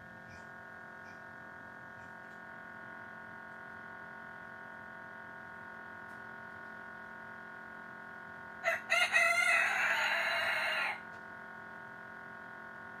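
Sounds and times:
steady hum: 0.0s - 13.0s
rooster crowing: 8.6s - 11.1s.

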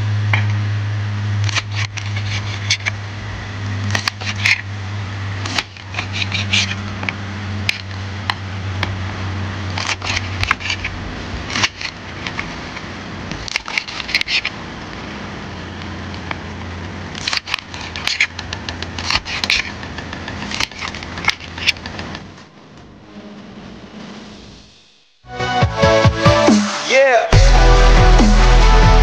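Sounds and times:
steady low hum: 0.0s - 25.2s
knife crunching through fried crust: 1.4s - 3.0s, 3.8s - 4.7s, 5.4s - 7.0s, 9.7s - 14.6s, 17.1s - 22.1s.

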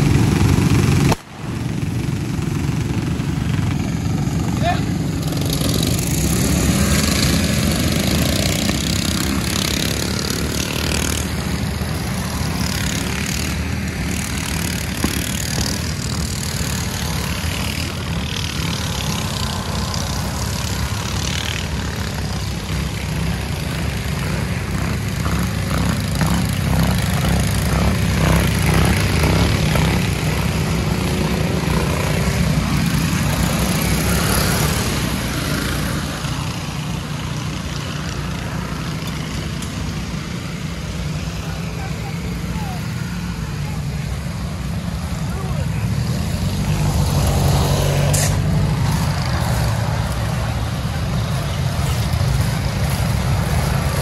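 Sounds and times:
lawn mower engines droning: 0.0s - 54.0s.

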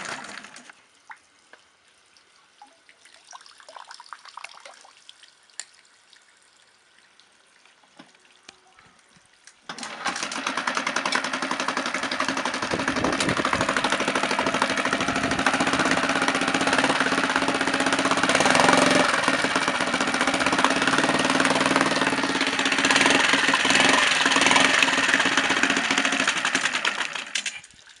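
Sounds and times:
water trickling: 0.9s - 9.7s, 27.6s - 28.0s
outboard engine running: 9.7s - 27.6s.

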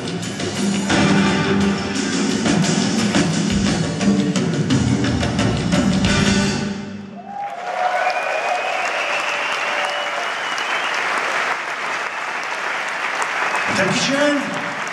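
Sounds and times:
cheers and whistles: 7.1s - 13.9s
audience applauding: 7.2s - 14.9s.

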